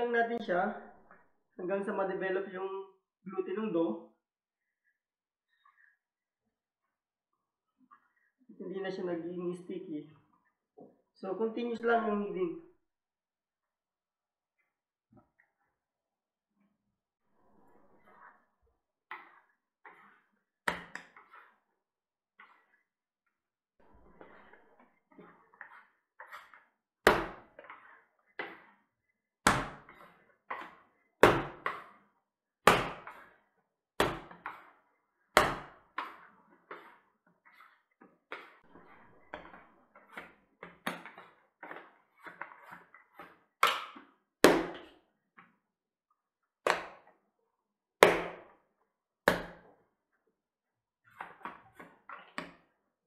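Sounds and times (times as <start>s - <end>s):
scraper scraping counter: 21.1s - 21.7s, 24.0s - 26.7s.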